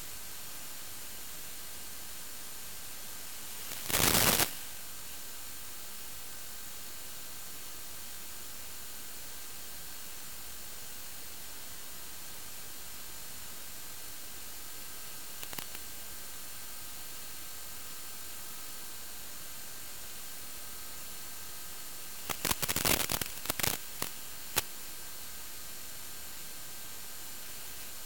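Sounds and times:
radio static hiss: 0:02.7 - 0:05.0, 0:15.0 - 0:16.0, 0:21.9 - 0:25.2
static crackle: 0:02.8 - 0:04.9, 0:15.0 - 0:16.0, 0:21.8 - 0:25.0
noise burst: 0:03.3 - 0:04.8, 0:22.2 - 0:24.8.

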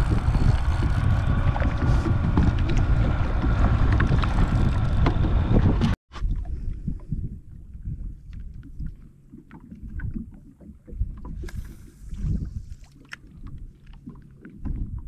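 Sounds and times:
waves slapping plastic hull: 0:00.0 - 0:07.0
wind buffeting microphone: 0:00.0 - 0:09.0, 0:09.8 - 0:12.8.

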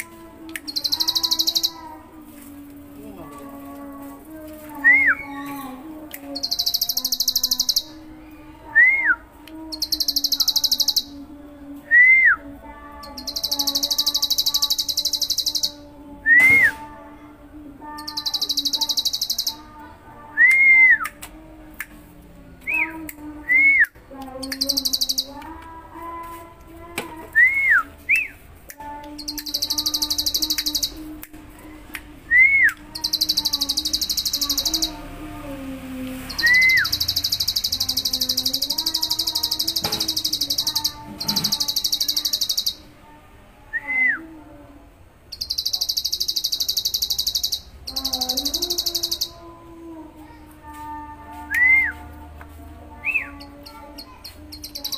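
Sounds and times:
bird rattling trills: 0:00.7 - 0:02.0.

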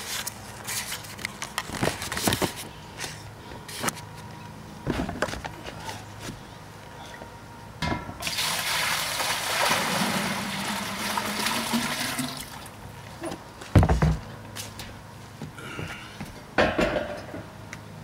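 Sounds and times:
water gushing into a pot: 0:08.2 - 0:12.7.

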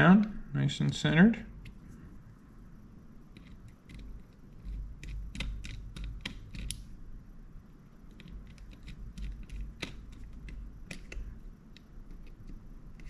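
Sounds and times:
screwdriver clicks and ticks: 0:03.4 - 0:06.8, 0:08.1 - 0:13.0.

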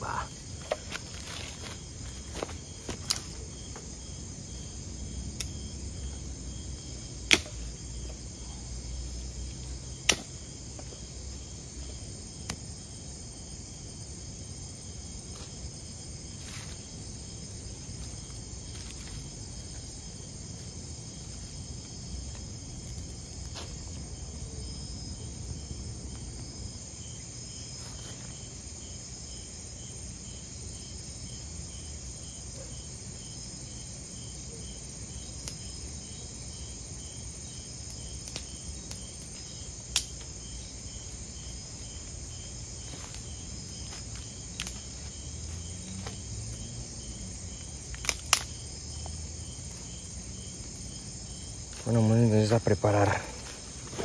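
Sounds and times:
crickets chirping: 0:00.0 - 0:54.0
campfire cracks: 0:00.2 - 0:04.0, 0:06.7 - 0:08.2, 0:09.8 - 0:14.0, 0:17.6 - 0:24.2, 0:35.3 - 0:36.0, 0:37.6 - 0:45.1, 0:47.6 - 0:48.8.

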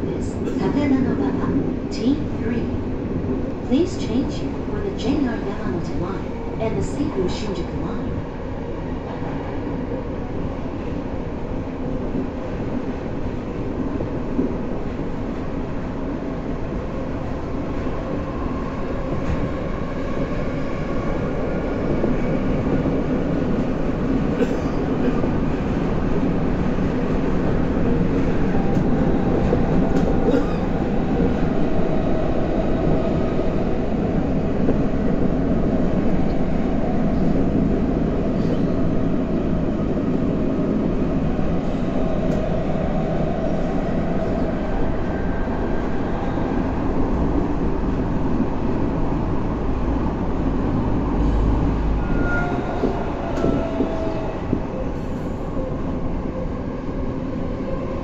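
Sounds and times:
subway train running in tunnel: 0:00.0 - 0:58.0
rail clicks: 0:22.0 - 0:33.2, 0:41.2 - 0:44.2, 0:52.5 - 0:54.8.

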